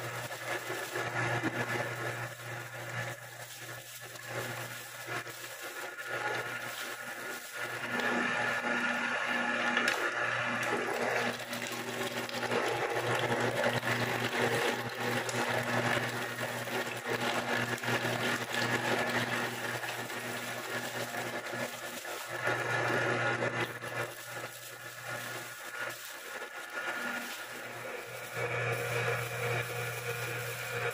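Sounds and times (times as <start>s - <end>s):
bone crackling in grinder: 0.0s - 30.9s
meat grinder motor hum: 0.0s - 30.9s.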